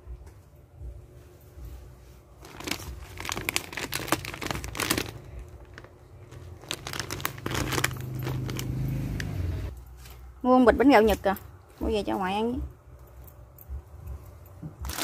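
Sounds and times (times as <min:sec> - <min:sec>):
plastic packaging crinkling: 0:02.4 - 0:08.9.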